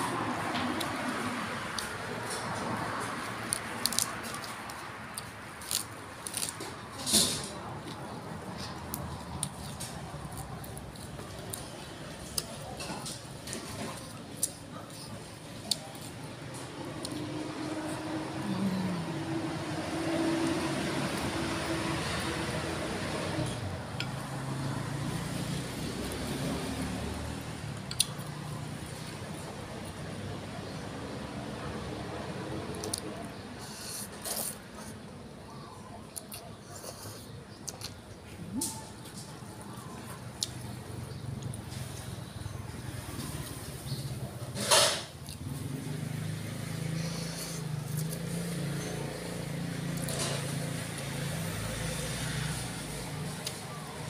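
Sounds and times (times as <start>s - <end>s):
vehicle engine humming: 13.2s - 32.5s, 38.4s - 54.0s.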